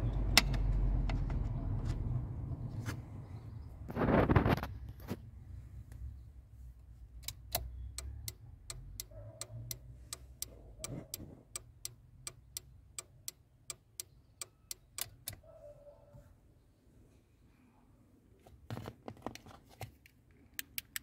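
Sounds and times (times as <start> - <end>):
turn signal relay clicking: 7.1 - 15.5.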